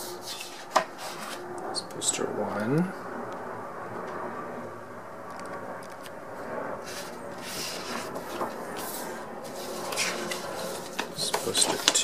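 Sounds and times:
paper posters rustling and sliding: 0.0s - 1.4s, 6.8s - 12.0s.

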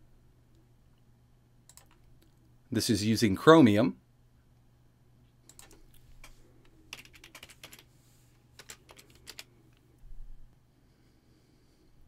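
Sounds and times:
keyboard typing: 1.7s - 2.4s, 5.5s - 7.9s, 8.6s - 9.5s.

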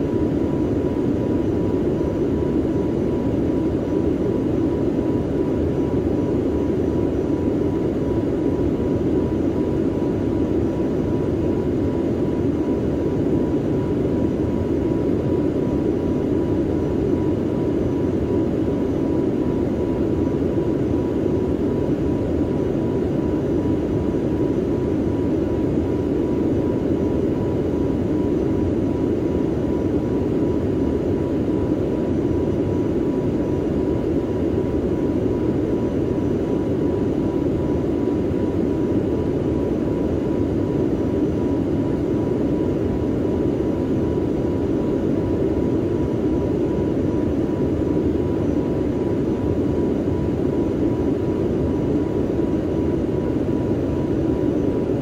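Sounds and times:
airliner cabin drone: 0.0s - 55.0s
faint constant tone: 0.0s - 55.0s.

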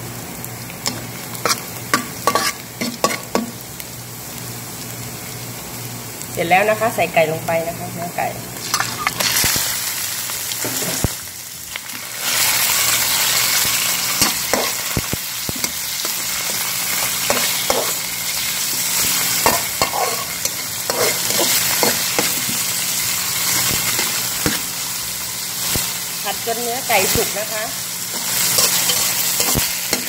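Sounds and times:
chicken sizzling in hot oil: 0.0s - 7.6s, 8.2s - 30.0s
spatula scraping a wok: 0.9s - 3.5s, 10.5s - 11.1s, 11.9s - 24.7s, 28.1s - 30.0s.

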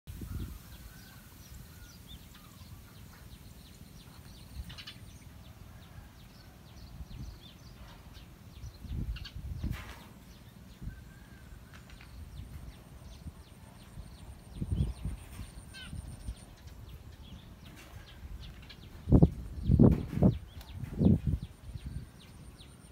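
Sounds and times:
bird chirps: 0.2s - 22.9s.

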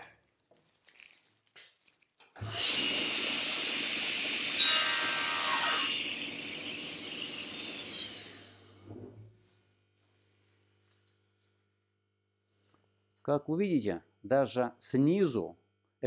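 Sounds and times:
table saw cutting wood: 2.4s - 8.9s.

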